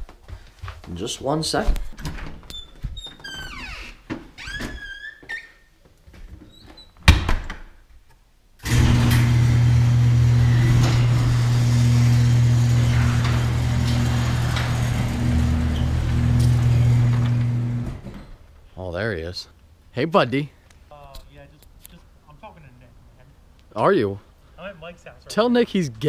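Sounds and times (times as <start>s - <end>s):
door shutting: 2.0s - 5.2s, 8.6s - 18.4s
garage door opener humming: 8.6s - 18.3s.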